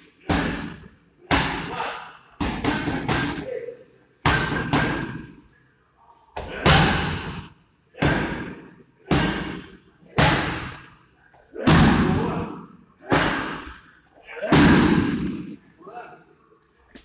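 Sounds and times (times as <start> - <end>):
gloved strikes slapping pads: 4.3 - 5.2.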